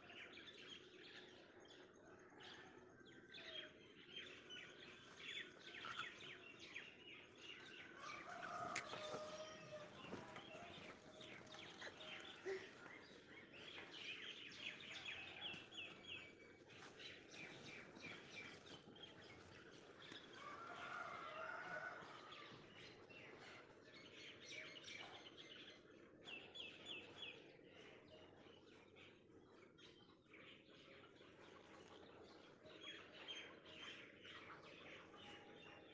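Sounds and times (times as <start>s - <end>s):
birds chirping: 3.7s - 35.5s.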